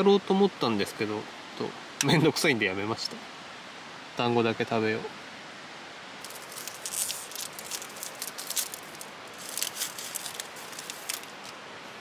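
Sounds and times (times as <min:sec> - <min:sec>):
steady hiss: 0:00.0 - 0:12.0
plastic packaging crinkling: 0:06.2 - 0:11.6.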